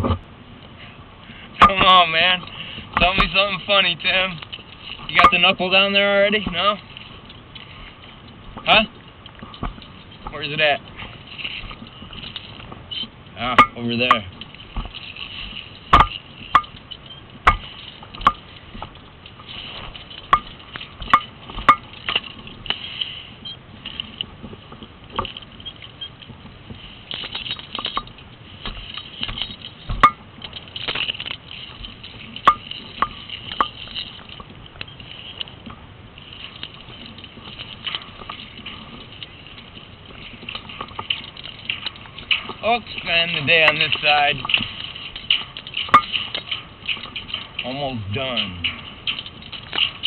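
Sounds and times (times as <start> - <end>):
clicks and knocks on steel: 15.9 - 22.8, 43.7 - 47.7.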